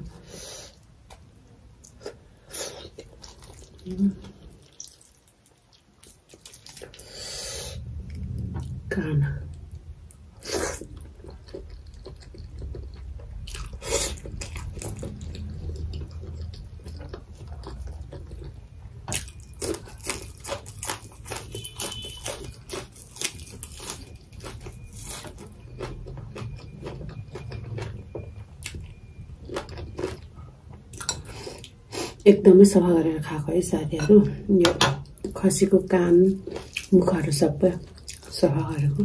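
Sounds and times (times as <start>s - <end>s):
wet chewing and smacking: 2.8s - 7.0s, 10.1s - 31.8s, 36.4s - 38.5s
steady low hum: 5.7s - 39.0s.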